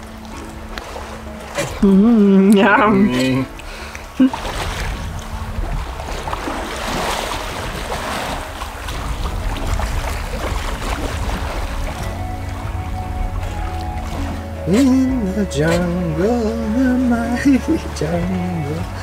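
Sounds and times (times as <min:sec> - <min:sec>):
rushing water past a boat: 0:00.0 - 0:19.0
wind buffeting the microphone: 0:00.0 - 0:19.0.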